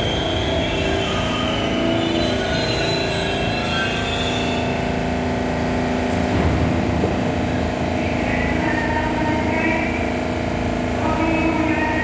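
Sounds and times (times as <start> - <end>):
subway train mechanical hum: 0.0 - 12.0
low rumble: 6.0 - 8.7.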